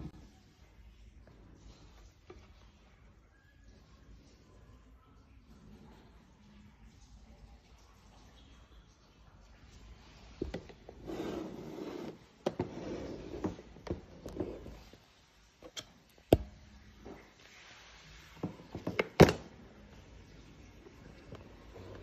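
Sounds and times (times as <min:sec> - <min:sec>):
plastic box rubbing and scraping: 0:10.9 - 0:14.9.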